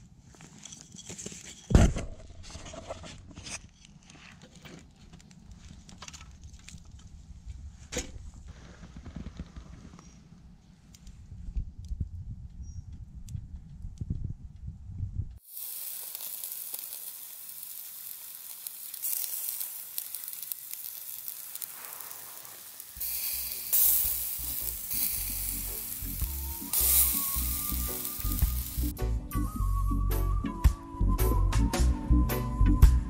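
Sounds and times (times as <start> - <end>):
sausage sizzling over fire: 15.4 - 29.0
background music: 23.0 - 33.0.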